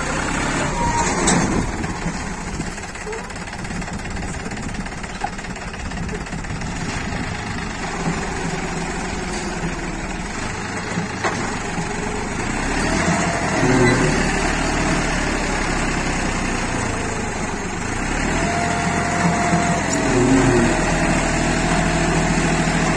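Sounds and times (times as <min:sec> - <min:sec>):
tractor diesel engine running: 0:00.0 - 0:22.9.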